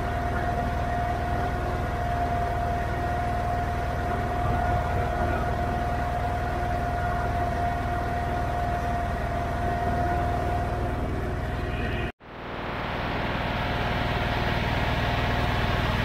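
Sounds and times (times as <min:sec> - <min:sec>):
garden tractor engine running: 0:00.0 - 0:16.0
high whine: 0:00.0 - 0:16.0.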